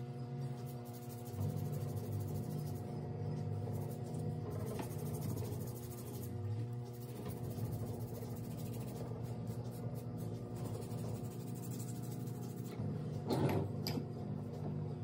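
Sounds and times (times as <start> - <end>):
steady low hum: 0.0 - 15.0
foot file rasping on skin: 0.6 - 2.9, 3.7 - 12.8.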